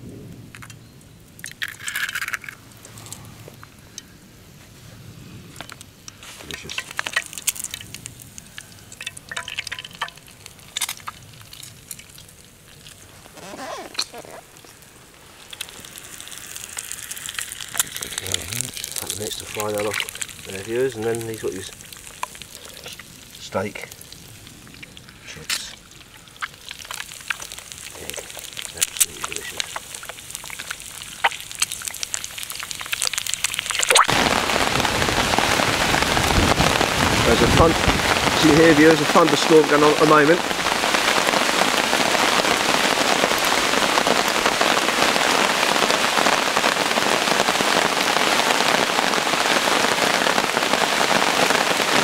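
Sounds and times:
egg sizzling and popping in oil: 0.5s - 4.2s, 5.5s - 37.0s.

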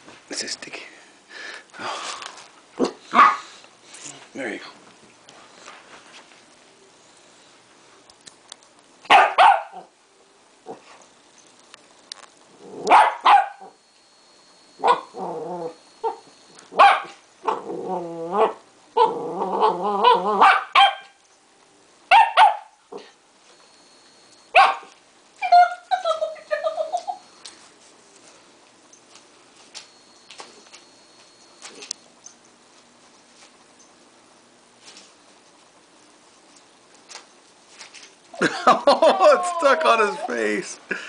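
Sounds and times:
dogs barking: 2.8s - 3.5s, 9.1s - 9.9s, 12.8s - 13.8s, 16.8s - 17.6s, 18.4s - 21.2s, 22.1s - 22.8s, 24.6s - 24.9s
dogs wavering vocal sounds: 14.8s - 16.3s, 17.5s - 20.5s.

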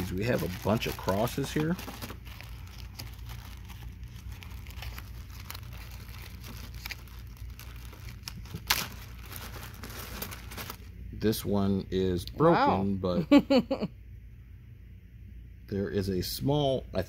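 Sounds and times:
plastic bag crinkling: 0.0s - 10.9s
steady low hum: 0.0s - 17.0s.

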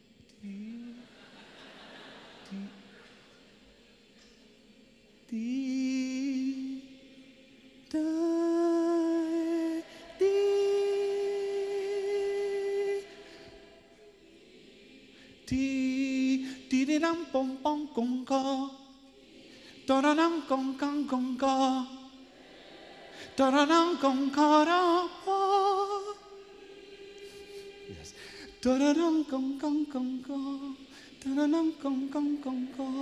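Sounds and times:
man singing into a microphone: 7.9s - 13.1s, 15.5s - 18.8s, 19.9s - 22.1s, 23.4s - 26.2s, 28.0s - 33.0s.

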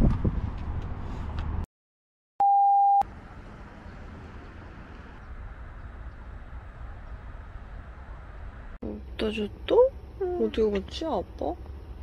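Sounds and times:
electronic beep: 2.4s - 3.0s.

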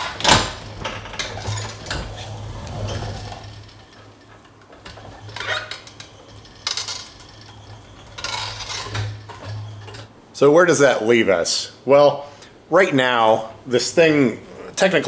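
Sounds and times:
power wheelchair clicks and rattles: 0.0s - 10.1s.

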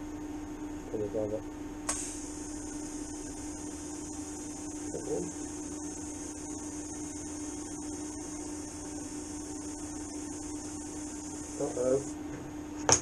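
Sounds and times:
welder electrical hum: 0.0s - 13.0s
high hiss: 1.9s - 12.2s.

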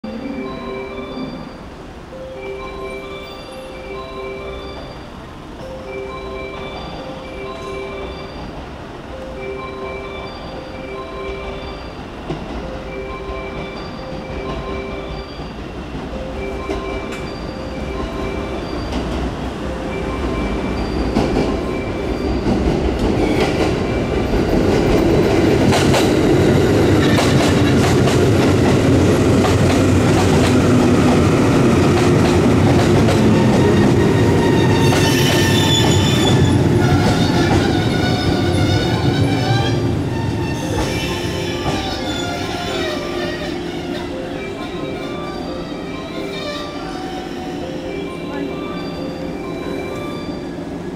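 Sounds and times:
train running noise: 0.1s - 50.9s
train brakes squealing: 16.8s - 24.5s, 33.2s - 47.8s
wheels clicking over rail joints: 20.3s - 45.7s.

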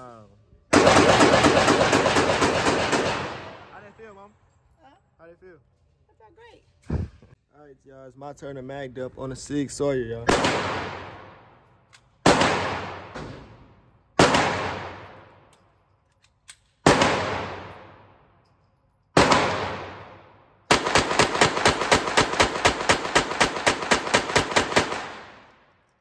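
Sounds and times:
pistol shots echoing: 0.7s - 3.7s, 10.3s - 11.5s, 12.2s - 13.6s, 14.2s - 15.5s, 16.8s - 18.1s, 19.2s - 25.6s.

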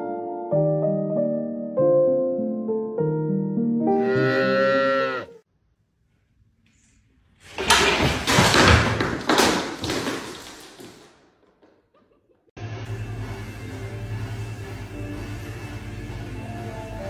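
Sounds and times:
piano music: 0.0s - 4.6s
things crashing down: 7.5s - 11.7s.

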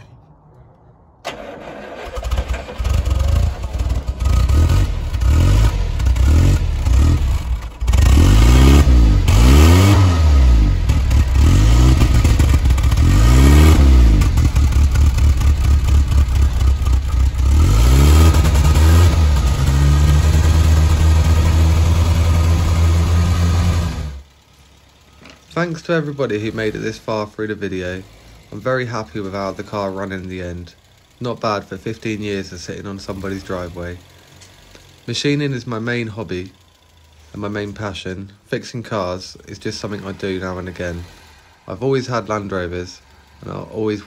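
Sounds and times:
car engine revving and idling: 1.3s - 44.0s.

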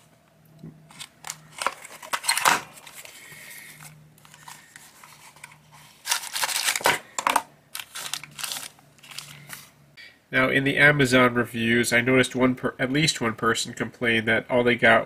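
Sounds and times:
plastic bag crinkling: 6.0s - 9.7s.

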